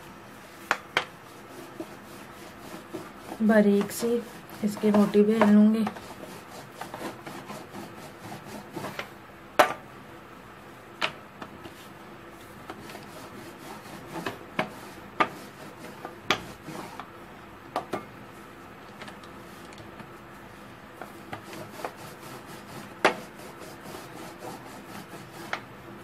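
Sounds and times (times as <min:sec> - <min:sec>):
rolling pin rubbing on dough: 0:00.4 - 0:09.1, 0:11.6 - 0:17.1, 0:19.4 - 0:26.0.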